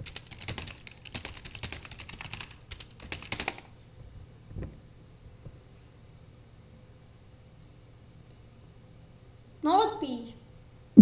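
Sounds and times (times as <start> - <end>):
fast keyboard typing: 0.0 - 3.7.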